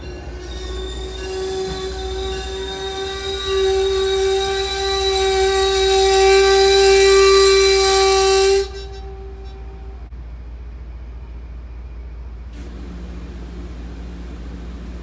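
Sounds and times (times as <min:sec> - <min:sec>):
train horn: 0:00.0 - 0:10.1.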